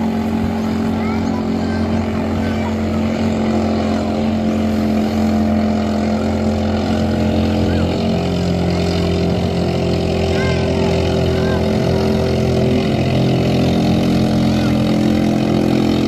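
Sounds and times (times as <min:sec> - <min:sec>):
motorboat engine droning: 0:00.0 - 0:16.0.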